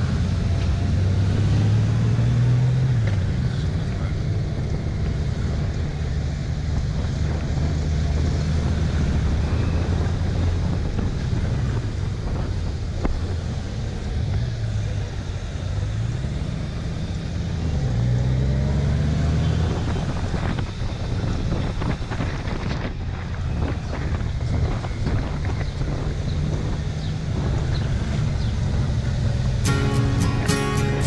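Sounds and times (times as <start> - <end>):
wind buffeting microphone: 3.2 - 18.0, 19.3 - 29.6
motorcycle engine running: 19.8 - 31.0.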